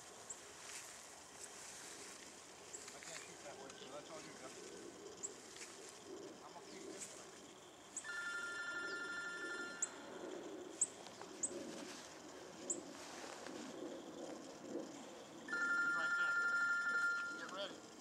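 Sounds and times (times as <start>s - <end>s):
brush rustling: 0.0s - 6.1s, 11.0s - 13.8s
electronic two-tone warbling beep: 15.5s - 17.6s.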